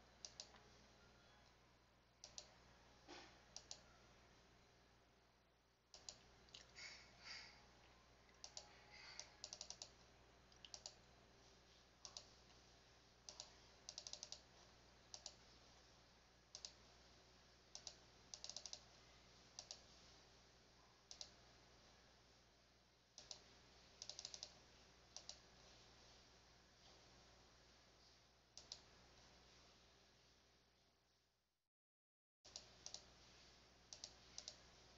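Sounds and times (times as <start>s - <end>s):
faint low hum: 0.0s - 31.4s, 32.5s - 34.9s
computer mouse clicking: 0.2s - 0.6s, 2.2s - 2.6s, 3.5s - 3.9s, 5.9s - 6.7s, 8.3s - 11.0s, 12.0s - 12.4s, 13.3s - 14.5s, 15.1s - 15.4s, 16.5s - 16.8s, 17.7s - 18.9s, 19.6s - 19.9s, 21.1s - 21.4s, 23.2s - 24.6s, 25.2s - 25.5s, 28.6s - 28.9s, 32.5s - 33.1s, 33.9s - 34.6s.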